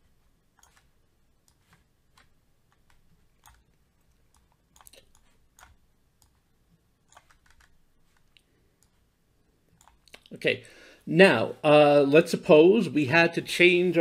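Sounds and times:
computer mouse clicks: 0.5s - 6.4s, 7.1s - 9.0s, 9.8s - 10.3s.

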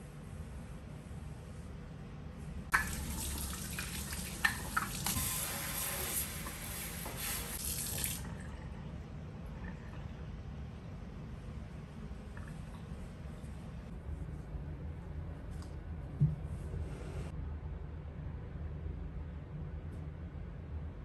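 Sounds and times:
faucet running into metal sink: 2.7s - 8.4s.

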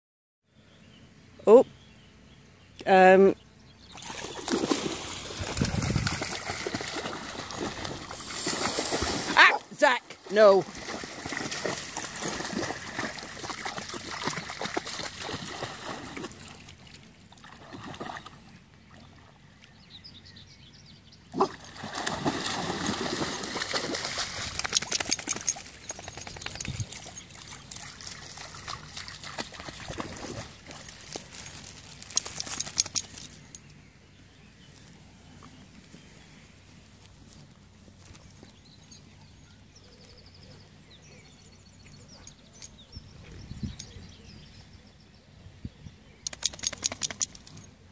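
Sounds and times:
dogs splashing through water: 3.9s - 19.4s, 21.4s - 33.4s.

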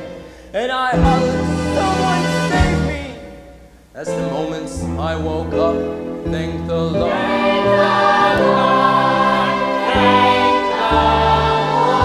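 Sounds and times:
instrumental accompaniment: 0.0s - 12.0s
chorus singing gospel-style: 6.8s - 12.0s.

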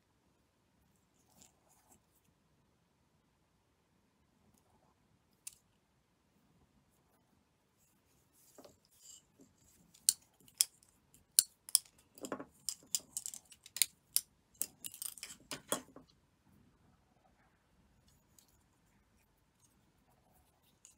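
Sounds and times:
thread rustling: 6.9s - 16.2s, 18.0s - 20.9s.

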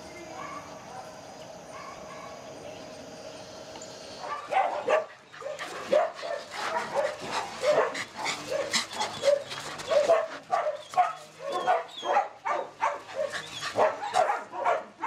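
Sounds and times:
dogs barking: 0.3s - 0.8s, 1.7s - 2.5s, 4.2s - 15.0s.

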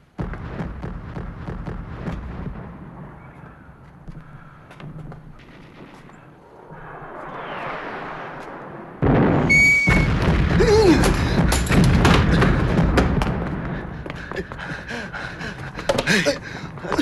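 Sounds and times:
loud explosion blast: 0.0s - 3.8s, 5.4s - 14.1s
brief whistle-like tone: 9.4s - 10.1s
clatter of thuds and cracks: 11.0s - 13.6s, 15.7s - 17.0s.

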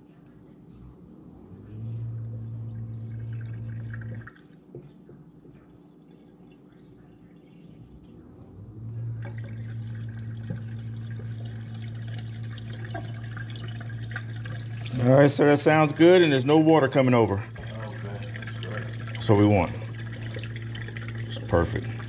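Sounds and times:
garbage disposal motor humming: 1.3s - 4.9s, 7.8s - 22.0s
water draining: 2.8s - 4.6s, 9.2s - 22.0s.

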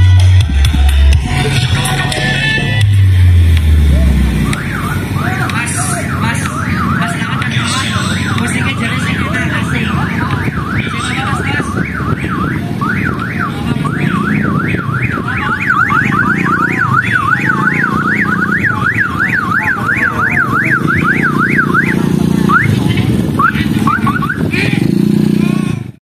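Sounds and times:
steady low rumble: 0.0s - 6.6s
electronic warbling siren: 2.3s - 25.1s.

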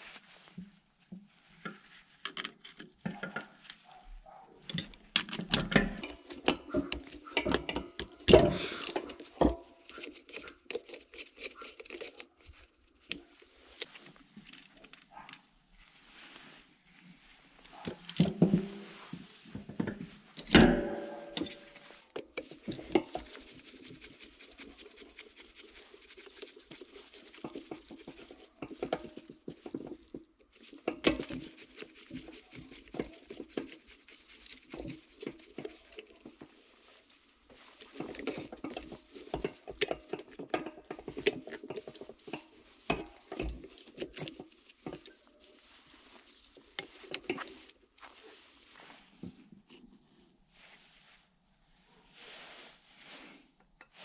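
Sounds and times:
metal parts and tools clinking: 4.6s - 13.9s, 20.4s - 23.6s, 28.1s - 33.8s, 37.6s - 48.3s.

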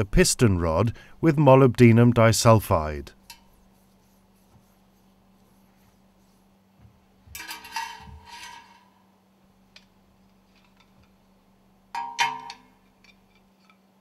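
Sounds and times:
steel parts clinking on metal table: 7.4s - 8.9s.

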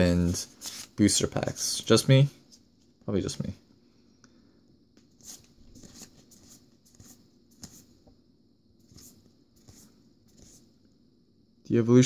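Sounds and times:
light scratches of cards: 5.0s - 7.9s.

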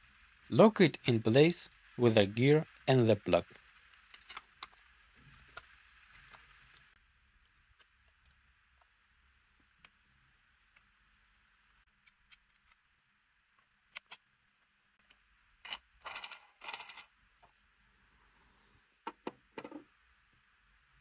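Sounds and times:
plastic parts scraping: 15.6s - 17.1s.

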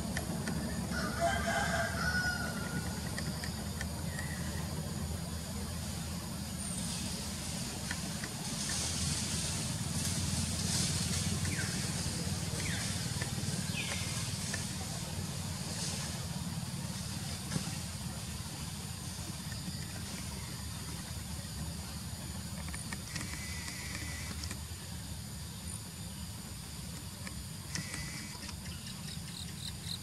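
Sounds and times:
high hiss: 5.4s - 20.1s.

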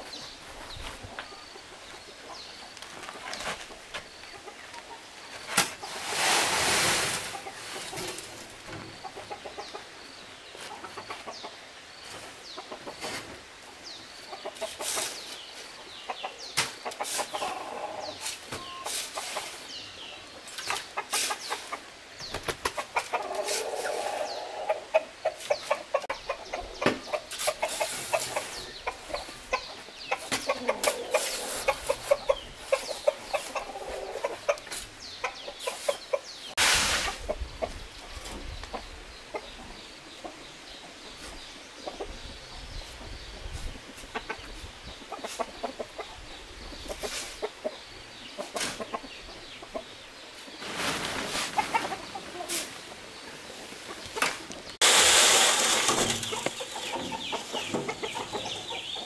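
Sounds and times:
chickens clucking: 0.0s - 59.0s
sand sliding out of wheelbarrow: 5.4s - 8.3s, 23.3s - 24.6s, 35.6s - 37.3s, 54.8s - 58.2s.

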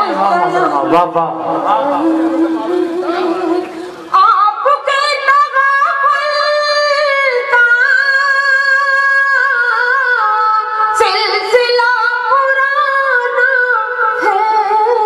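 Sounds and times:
woman singing slowly: 1.7s - 15.0s.

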